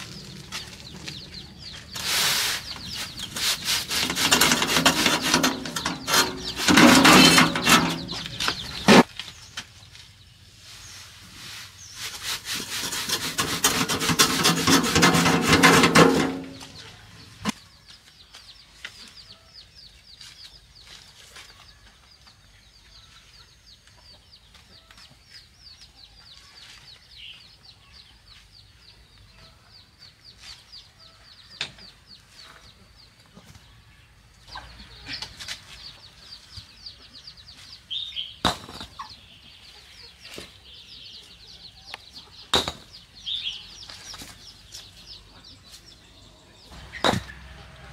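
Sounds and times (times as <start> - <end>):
chickens clucking: 0.0 - 9.2, 12.0 - 17.9, 28.2 - 47.9
sharp knocks: 47.0 - 47.4.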